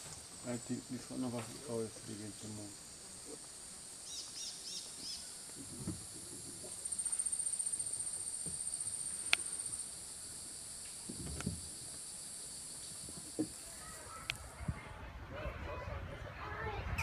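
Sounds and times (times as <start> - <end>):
insects chorus: 0.0 - 14.5
insect pulsing trill: 2.0 - 13.7.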